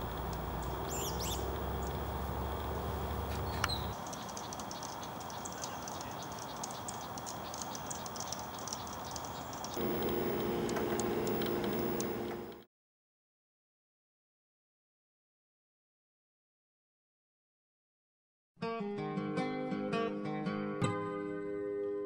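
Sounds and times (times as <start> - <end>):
bird alarm chips: 0.0 - 12.6
other birds alarming: 0.3 - 12.6.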